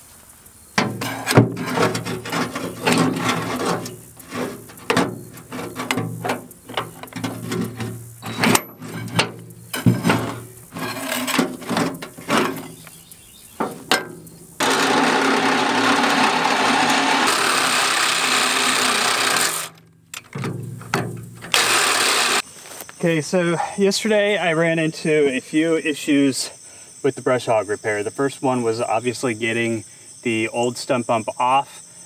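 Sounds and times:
reciprocating saw cutting metal: 0.8 - 12.8, 13.6 - 19.8, 21.4 - 22.4.

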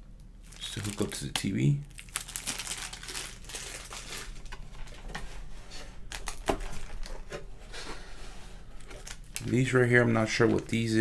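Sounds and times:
plastic bags crinkling: 0.4 - 5.2, 6.0 - 7.2, 8.8 - 11.0.

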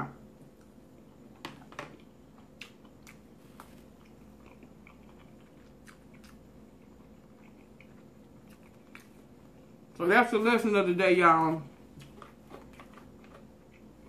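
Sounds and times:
chewing with soft mouth clicks: 1.9 - 9.5.

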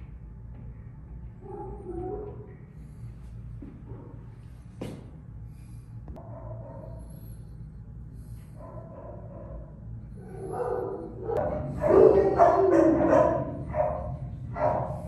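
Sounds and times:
dogs barking: 1.4 - 2.6, 6.2 - 7.5, 8.2 - 15.0.

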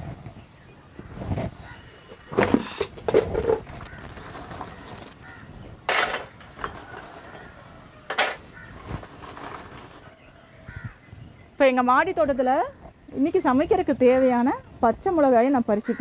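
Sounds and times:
crow cawing: 3.8 - 5.6, 8.4 - 9.0, 10.7 - 11.0.

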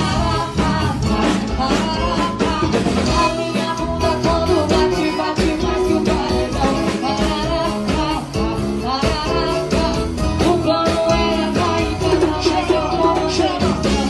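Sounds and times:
live band with singing: 0.0 - 14.0.

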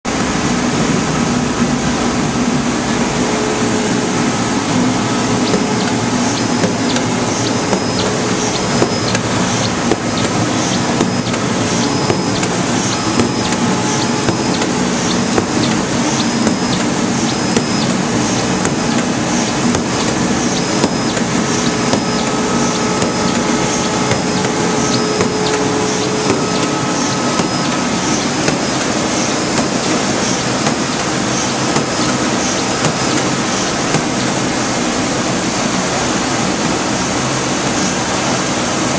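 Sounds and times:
machine drone: 0.1 - 38.9
short high machine sound: 2.0 - 33.8.

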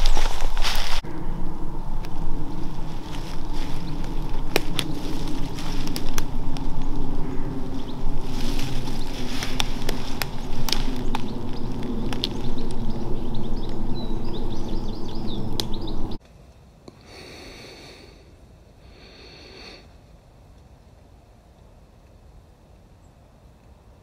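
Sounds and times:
soft rustles: 0.0 - 1.0, 2.1 - 12.8
footsteps crunching through dry leaves: 0.0 - 1.1, 2.0 - 14.6
small bird chirping: 2.6 - 16.2
faint hiss: 16.2 - 20.4.

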